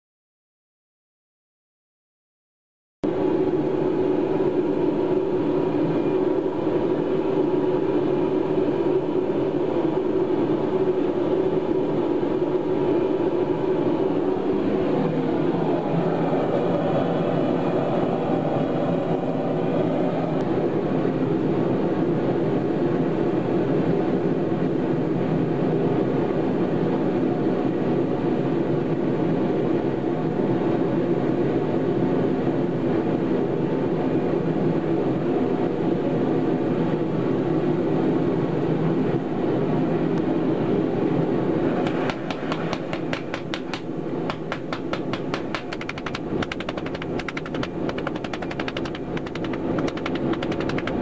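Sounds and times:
forge running: 41.7s - 51.0s
hammer blows on hot steel: 41.8s - 51.0s.

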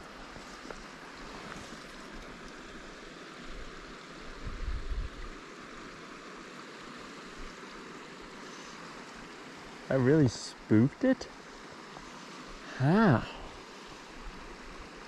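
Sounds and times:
flowing water rushing: 0.0s - 15.0s
wind buffeting microphone: 4.4s - 5.3s.

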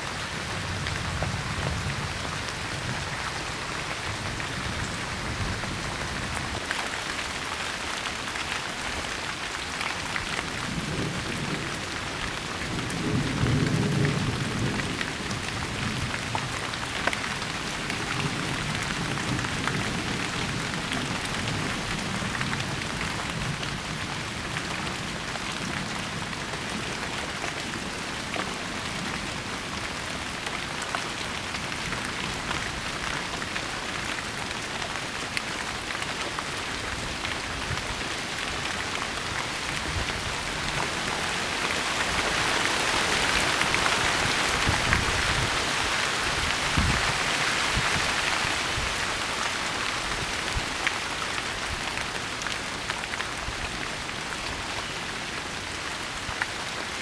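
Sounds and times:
steady rain falling: 0.0s - 57.0s.

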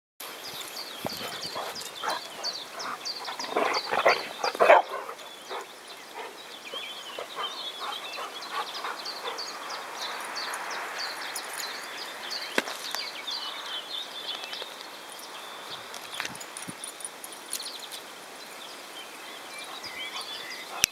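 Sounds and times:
dogs barking and yipping: 1.0s - 11.9s.

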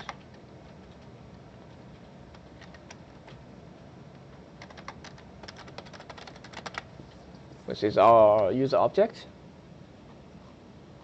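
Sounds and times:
typing on computer keyboard: 2.3s - 3.0s, 4.6s - 6.9s.

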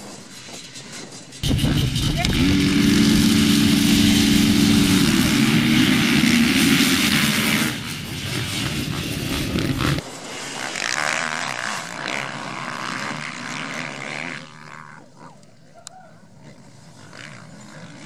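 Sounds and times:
motocross bikes revving: 1.4s - 10.0s.

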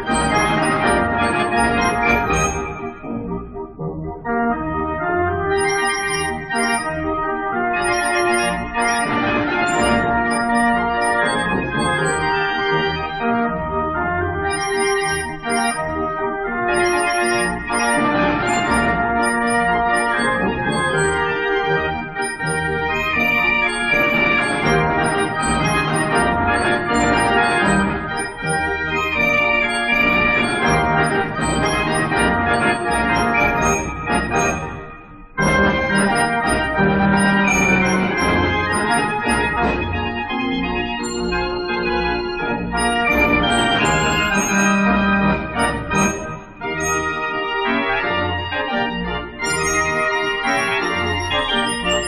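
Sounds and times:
street organ playing a tune: 0.0s - 52.0s
sharp percussion strikes: 35.5s - 39.6s.

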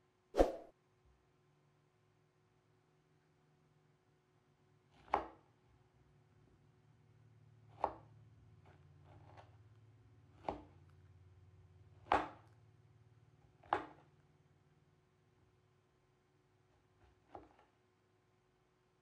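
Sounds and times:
knife chopping on cutting board: 7.8s - 8.1s, 10.4s - 10.7s, 12.1s - 12.4s.

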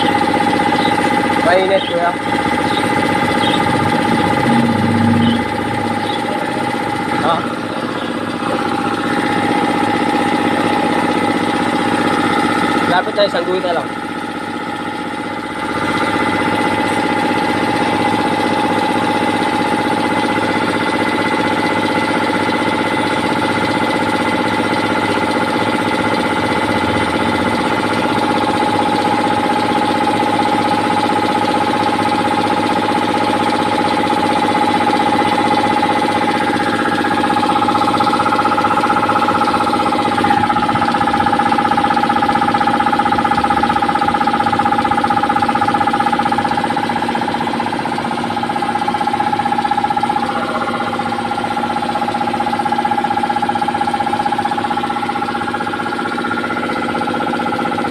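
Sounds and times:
air compressor humming: 0.0s - 57.9s
high whine: 0.7s - 9.2s.

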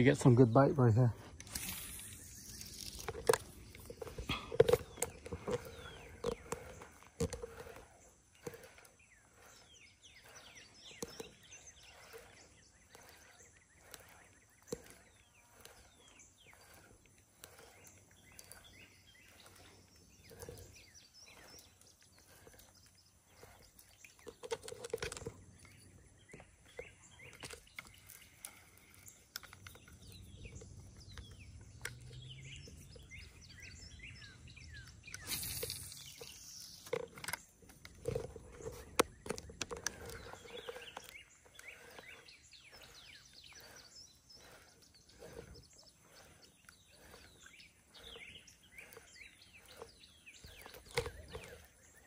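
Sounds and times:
faint bird chirps: 0.0s - 6.8s, 25.2s - 52.0s.

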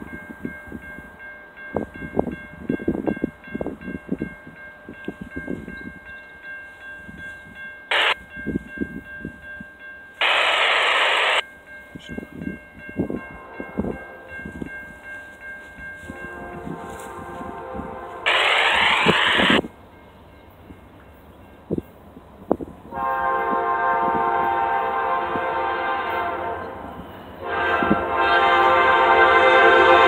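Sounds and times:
railroad crossing bells ringing: 0.0s - 30.0s
loud noise blast: 7.9s - 8.2s, 10.2s - 11.4s, 18.3s - 19.6s.

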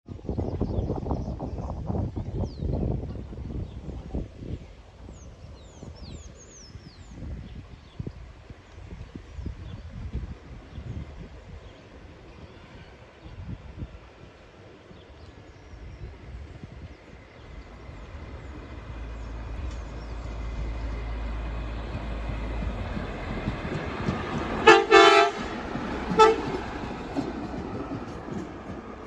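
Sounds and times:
wheels rumbling on rails: 0.1s - 29.0s
rail car engine running: 7.3s - 29.0s
train horn: 24.6s - 26.6s.

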